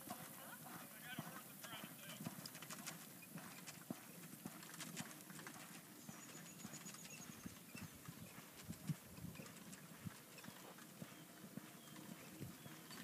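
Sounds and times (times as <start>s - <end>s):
horse hoofbeats on sand: 0.0s - 13.0s.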